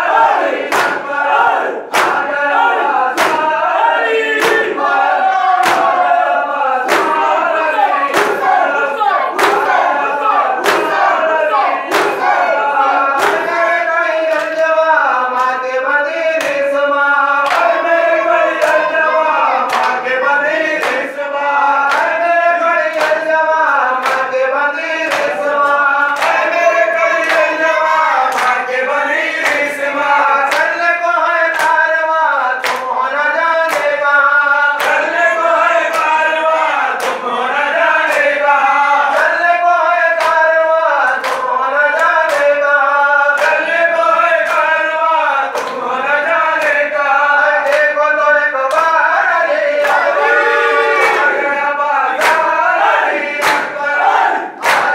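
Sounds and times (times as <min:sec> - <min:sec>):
men chanting in unison: 0:00.0 - 0:54.9
hand slaps on bare chests: 0:00.7 - 0:01.2, 0:01.9 - 0:02.4, 0:03.1 - 0:03.6, 0:04.3 - 0:05.0, 0:05.6 - 0:06.1, 0:06.9 - 0:07.4, 0:08.0 - 0:08.6, 0:09.4 - 0:10.0, 0:10.6 - 0:11.2, 0:11.9 - 0:12.4, 0:13.1 - 0:13.6, 0:17.4 - 0:17.8, 0:19.7 - 0:20.0, 0:20.8 - 0:21.1, 0:21.9 - 0:22.2, 0:22.9 - 0:23.2, 0:24.0 - 0:24.3, 0:25.1 - 0:26.5, 0:29.4 - 0:29.7, 0:31.5 - 0:31.8, 0:32.6 - 0:32.9, 0:33.7 - 0:34.0, 0:41.1 - 0:42.6, 0:45.5 - 0:45.8, 0:52.2 - 0:52.6, 0:53.4 - 0:53.8, 0:54.6 - 0:54.9.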